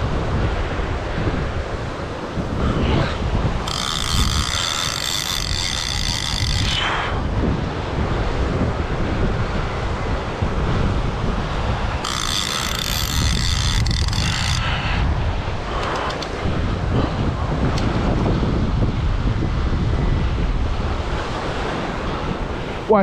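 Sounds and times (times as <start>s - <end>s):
surf rumble: 0.0s - 23.0s
wind buffeting microphone: 0.0s - 23.0s
fishing reel whirring: 2.6s - 7.2s, 11.4s - 16.4s.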